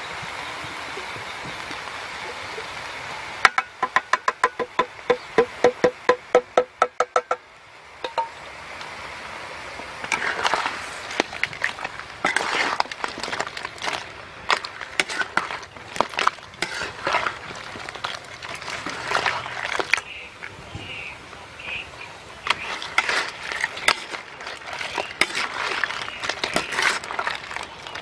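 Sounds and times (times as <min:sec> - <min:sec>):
wood-block clicks of music: 0:03.5 - 0:07.4
metal spatula scraping a wok: 0:10.1 - 0:19.7, 0:22.4 - 0:27.4.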